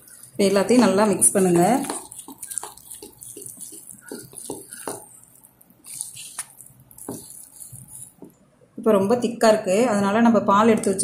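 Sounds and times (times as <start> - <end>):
spoon stirring batter in bowl: 0.0 - 8.4.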